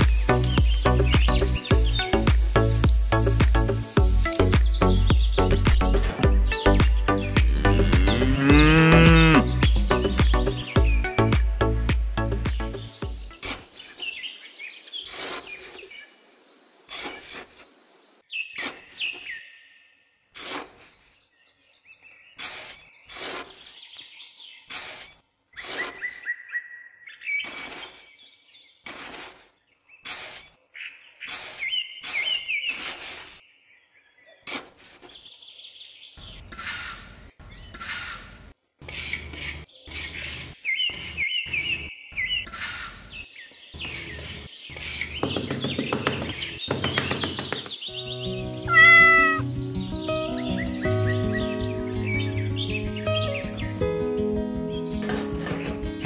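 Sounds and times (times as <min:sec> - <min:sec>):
birds chirping: 0:00.0 - 0:28.9, 0:29.5 - 0:56.0
metal shovel scraping damp sand: 0:13.3 - 0:14.2, 0:14.9 - 0:16.0, 0:16.8 - 0:17.8, 0:18.5 - 0:19.4, 0:20.3 - 0:21.3, 0:22.2 - 0:23.8, 0:24.6 - 0:26.3, 0:27.3 - 0:28.2, 0:28.8 - 0:30.6, 0:31.2 - 0:33.4, 0:34.4 - 0:35.3, 0:38.8 - 0:41.9, 0:43.8 - 0:45.2.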